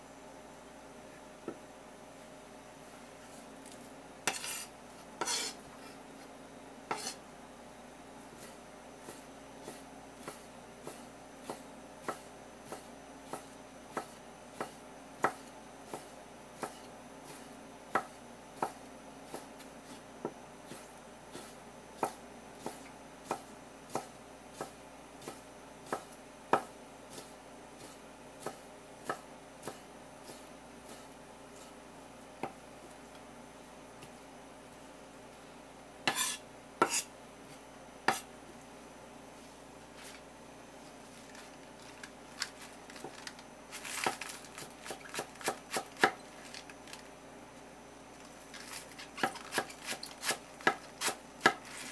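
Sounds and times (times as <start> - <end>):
knife chopping on wooden board: 4.3 - 5.6, 6.9 - 7.2, 8.4 - 31.7, 32.4 - 32.6, 36.0 - 37.1, 38.0 - 38.3, 44.0 - 46.2, 49.1 - 51.9.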